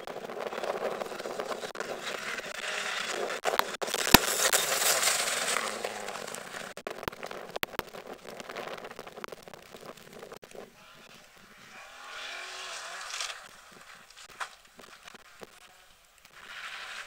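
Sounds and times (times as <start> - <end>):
sharp cracks: 0.0 - 17.0
rally car engine passing: 11.6 - 13.4.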